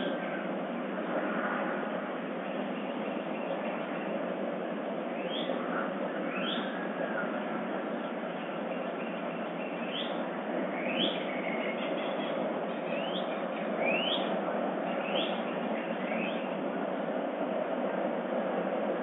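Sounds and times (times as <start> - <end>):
bird chirping: 6.3 - 6.7, 8.7 - 10.2, 10.8 - 16.5.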